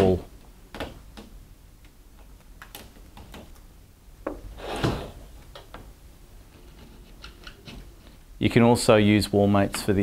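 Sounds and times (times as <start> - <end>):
thump and scrape: 4.3 - 5.2.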